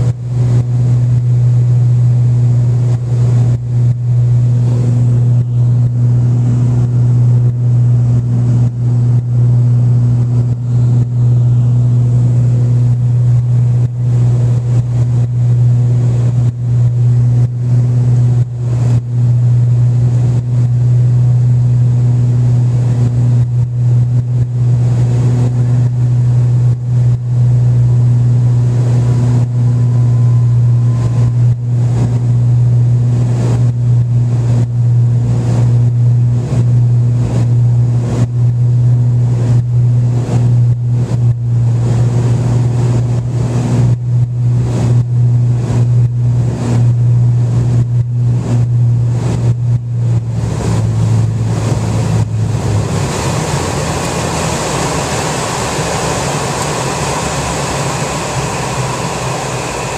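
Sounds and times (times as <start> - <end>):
piston engines droning: 0.0 - 59.9
rushing air noise: 22.2 - 38.6, 39.4 - 59.9.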